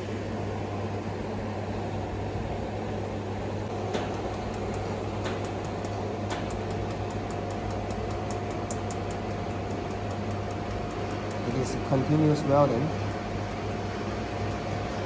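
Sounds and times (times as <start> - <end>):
cooling fans humming: 0.0 - 15.0
laser welder clicks: 3.9 - 12.6.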